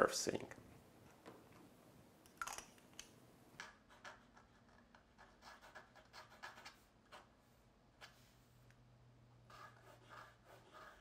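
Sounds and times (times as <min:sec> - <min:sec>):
pen nib scratching on paper: 0:03.7 - 0:07.3, 0:09.5 - 0:11.0.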